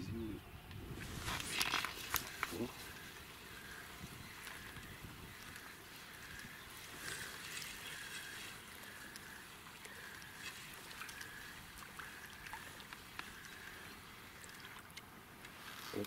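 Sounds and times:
light ticks: 0:07.4 - 0:13.8.

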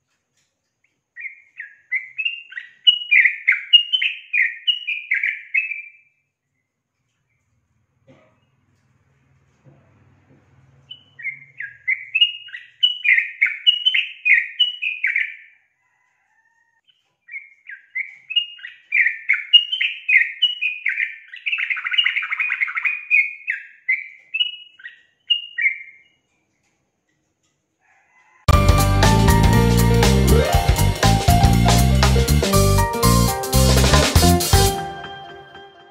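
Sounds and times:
bird singing chattering phrases: 0:10.9 - 0:15.6, 0:16.8 - 0:26.2.

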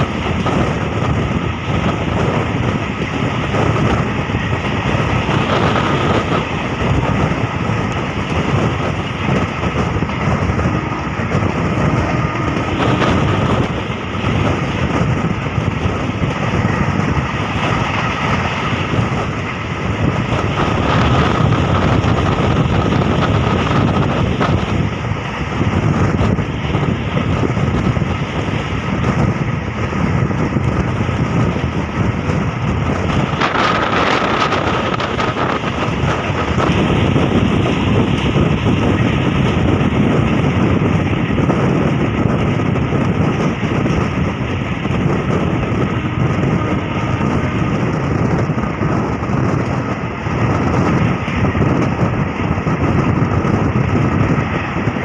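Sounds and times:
rushing air: 0:00.0 - 0:55.0
train wheels rumbling on rail: 0:00.0 - 0:55.0.

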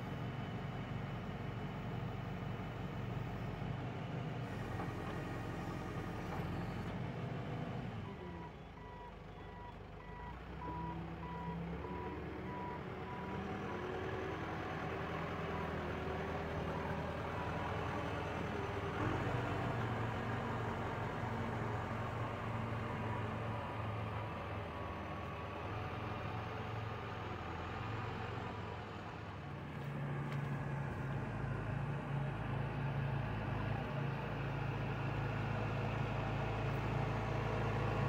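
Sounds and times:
diesel engine running: 0:07.8 - 0:38.0.

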